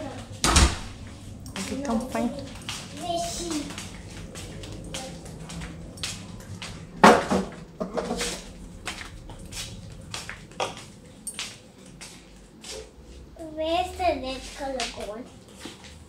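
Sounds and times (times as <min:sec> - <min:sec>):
footsteps on tiled floor: 0:00.0 - 0:16.0
loud thump: 0:00.4 - 0:01.0
small knocks and rustles: 0:00.4 - 0:12.9.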